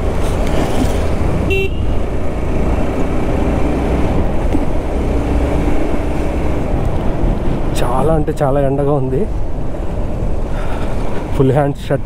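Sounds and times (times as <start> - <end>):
wind rumble: 0.0 - 12.0
horn beep: 1.5 - 2.0.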